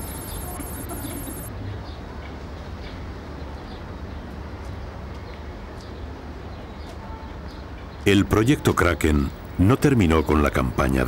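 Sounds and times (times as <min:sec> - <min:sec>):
small birds chirping: 0:00.0 - 0:01.5
distant traffic rumble: 0:07.8 - 0:11.0.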